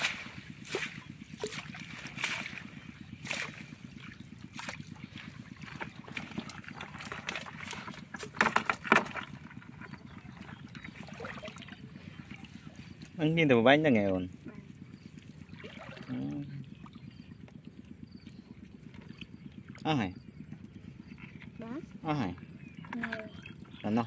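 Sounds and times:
water splashing and dripping: 0:00.0 - 0:09.4, 0:10.4 - 0:12.7, 0:15.2 - 0:16.4.

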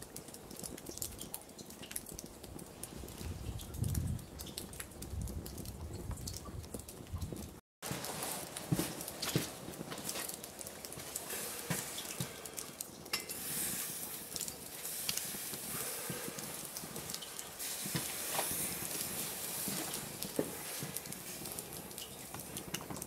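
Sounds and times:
wood fire crackling and popping: 0:00.0 - 0:23.0
fire hissing: 0:07.8 - 0:23.0.

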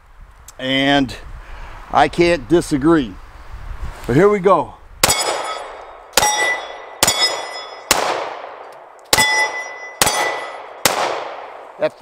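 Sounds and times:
steel target clanging: 0:05.0 - 0:08.0, 0:09.1 - 0:10.8
pistol shots: 0:05.0 - 0:11.6.

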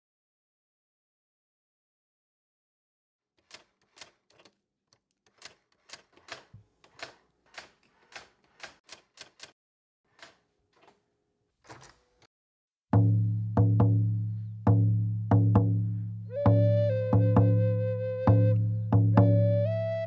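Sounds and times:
electric typewriter keys clacking: 0:05.3 - 0:09.6.

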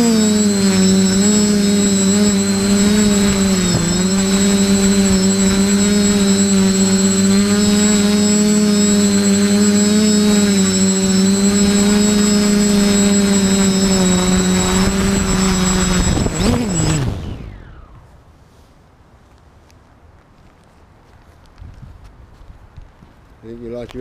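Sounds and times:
loud engine drone: 0:00.0 - 0:18.2
high whine: 0:00.0 - 0:18.4.

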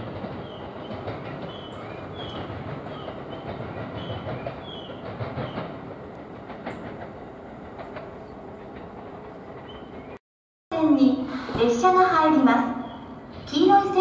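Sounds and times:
train wheel clicks: 0:00.0 - 0:10.0
train rumbling: 0:00.0 - 0:14.0.

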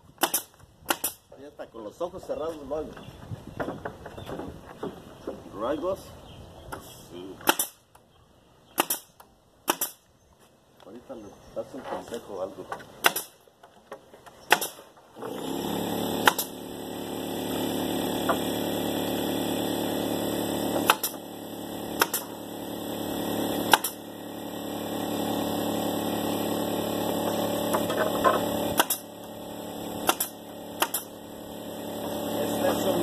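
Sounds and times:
nail gun firing into wood: 0:00.2 - 0:01.2, 0:06.7 - 0:08.0, 0:08.7 - 0:10.1, 0:13.0 - 0:13.4, 0:14.4 - 0:24.2, 0:26.2 - 0:32.4
air compressor running: 0:14.5 - 0:33.0.

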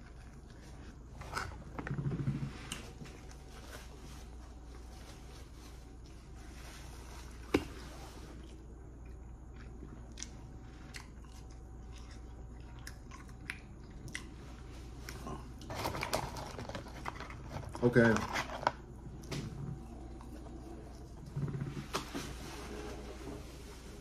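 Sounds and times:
person chewing: 0:07.3 - 0:15.8.

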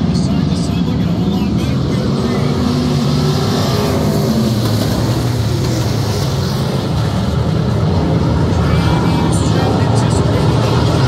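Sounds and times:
race car engines droning: 0:00.0 - 0:11.0.

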